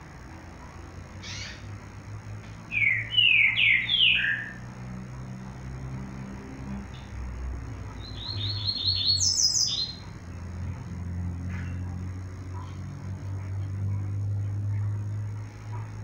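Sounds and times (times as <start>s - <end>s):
low steady hum: 0.0s - 16.0s
bird chirping: 1.2s - 1.7s, 2.7s - 4.6s, 8.0s - 10.1s.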